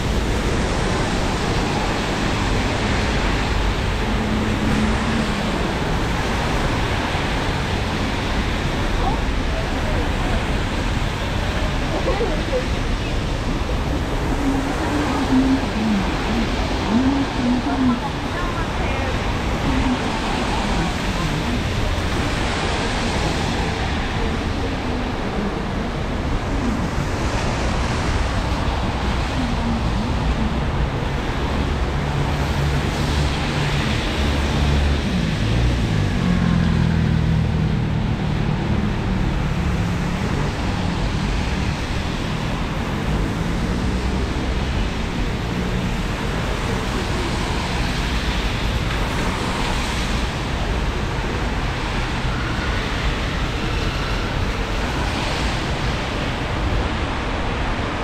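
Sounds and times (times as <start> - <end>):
tyres hissing on wet road: 0.0 - 58.0.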